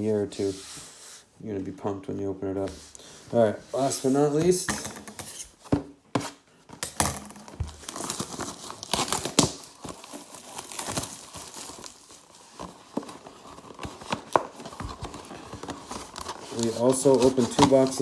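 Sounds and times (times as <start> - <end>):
plastic shrink-wrap crinkling: 7.4 - 18.0.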